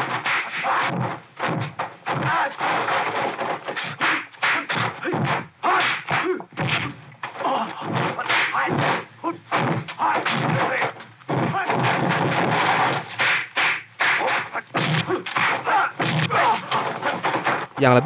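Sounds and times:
fighters' cries: 2.2 - 2.6, 4.0 - 12.0, 14.0 - 17.0.

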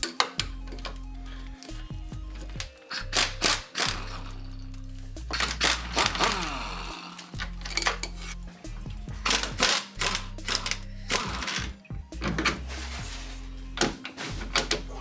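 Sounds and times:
background music with bass line: 0.0 - 15.0
pneumatic impact wrench: 2.9 - 4.4, 5.3 - 6.9, 9.2 - 11.7.

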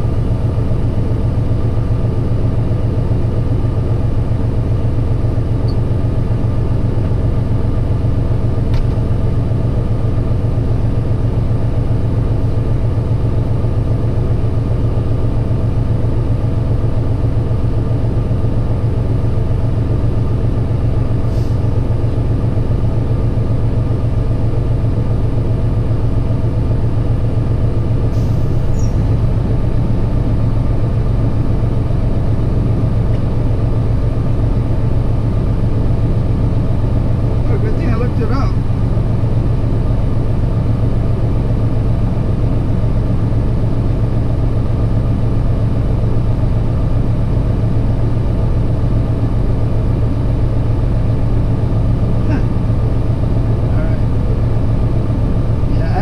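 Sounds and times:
truck engine idling: 14.4 - 45.2.

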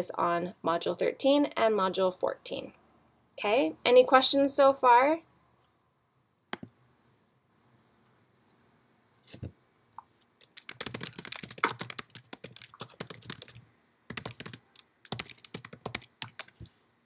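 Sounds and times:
typing on a computer keyboard: 10.4 - 16.6.

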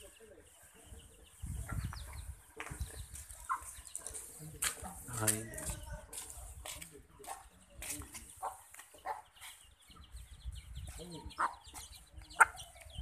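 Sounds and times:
chicks peeping: 0.0 - 13.0
hen clucking: 3.3 - 4.2, 11.1 - 13.0.

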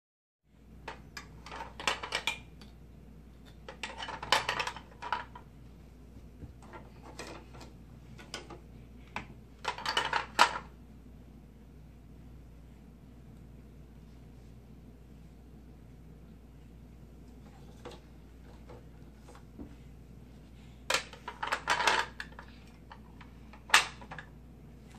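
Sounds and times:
plastic toy pieces clattering: 0.9 - 2.4, 3.6 - 5.4, 9.6 - 10.7, 20.9 - 22.5.

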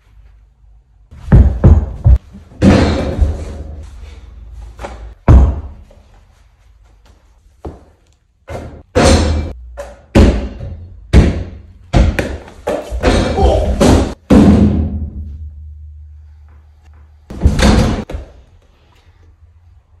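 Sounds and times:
basketball thudding on floor: 4.8 - 5.8.

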